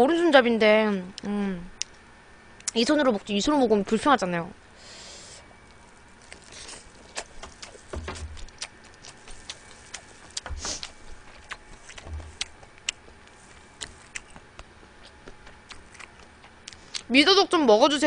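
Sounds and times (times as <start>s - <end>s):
wet chewing and sucking: 4.9s - 17.1s
slurps: 6.3s - 14.4s
dull low thumps: 7.4s - 8.7s, 10.3s - 13.2s.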